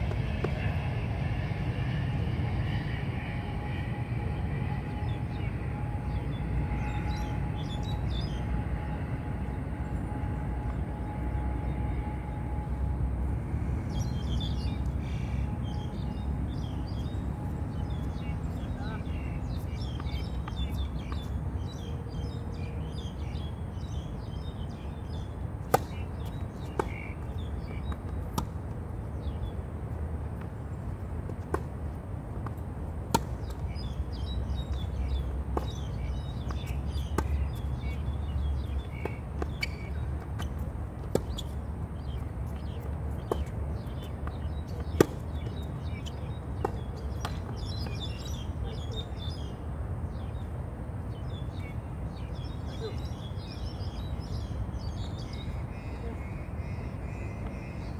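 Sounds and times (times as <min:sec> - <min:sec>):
low outdoor rumble: 0:00.0 - 0:57.9
small birds chirping: 0:13.9 - 0:28.4, 0:33.4 - 0:50.5
tennis ball impacts: 0:25.7 - 0:26.0, 0:26.6 - 0:27.0, 0:27.9 - 0:28.6, 0:31.3 - 0:31.7, 0:32.5 - 0:33.6, 0:36.5 - 0:37.4, 0:39.0 - 0:41.6, 0:43.2 - 0:45.6, 0:46.6 - 0:47.5.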